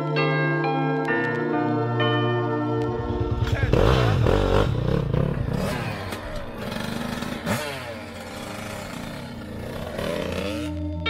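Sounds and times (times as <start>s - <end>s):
dirt bike engines revving: 3.3s - 11.0s.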